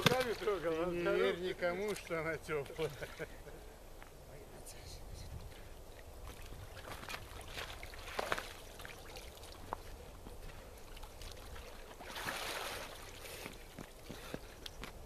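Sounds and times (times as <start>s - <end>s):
water splashing and sloshing: 0.0s - 1.0s, 1.6s - 3.4s, 5.6s - 14.3s.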